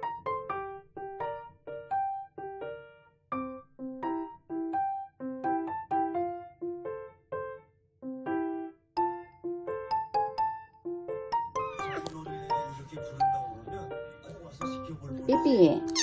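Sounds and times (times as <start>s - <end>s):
piano melody: 0.0s - 16.0s.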